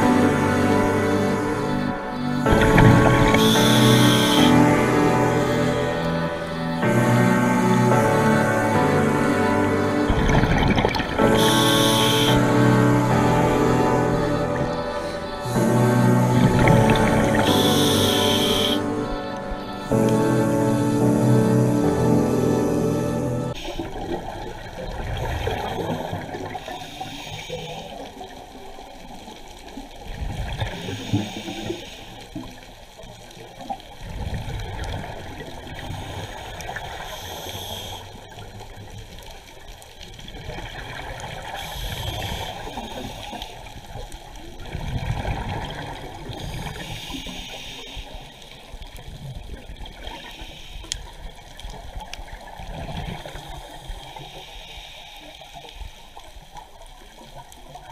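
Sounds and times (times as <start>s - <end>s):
regulator hiss on inhale: 3.3s - 4.6s, 11.4s - 12.9s, 25.9s - 28.4s, 30.6s - 32.8s, 35.8s - 38.4s, 41.4s - 44.3s, 46.2s - 49.0s, 50.0s - 51.8s, 53.3s - 57.4s
exhaust bubbles: 9.5s - 13.3s.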